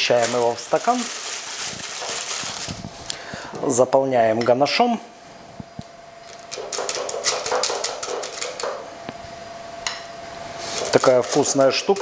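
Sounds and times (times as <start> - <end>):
plastic bag rustling: 0.0 - 3.2, 10.6 - 12.0
faint steady whine: 0.0 - 6.7, 8.5 - 11.6
spatula scraping a bowl: 10.6 - 12.0.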